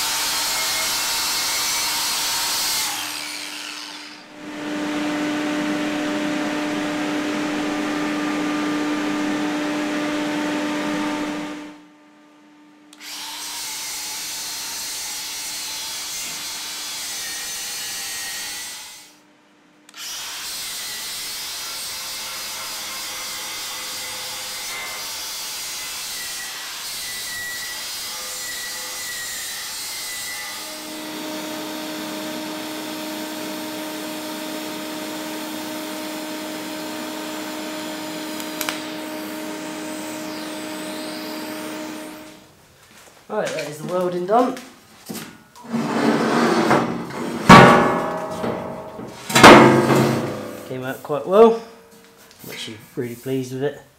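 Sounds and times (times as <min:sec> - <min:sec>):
angle grinder grinding steel: 0:00.0 - 0:04.3, 0:13.0 - 0:19.0.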